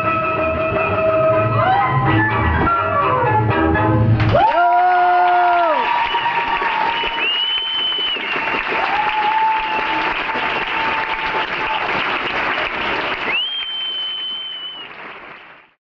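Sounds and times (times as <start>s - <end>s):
audience applauding: 4.2s - 15.8s
high sliding whistle: 6.1s - 8.7s, 13.3s - 15.0s.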